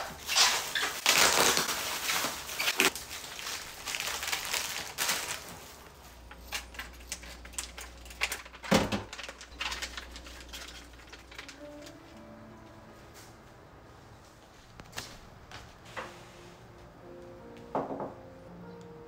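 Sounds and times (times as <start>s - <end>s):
plastic packaging rustling: 0.0s - 12.2s.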